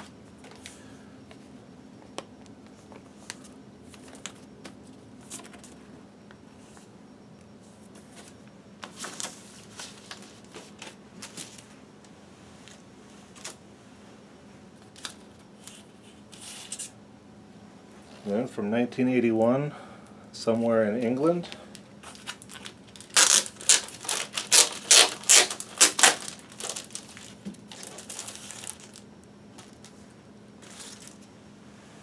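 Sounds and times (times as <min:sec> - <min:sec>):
faint steady hum: 0:00.0 - 0:32.0
paper sleeve rustling: 0:08.2 - 0:11.7, 0:22.0 - 0:29.0, 0:30.6 - 0:31.3.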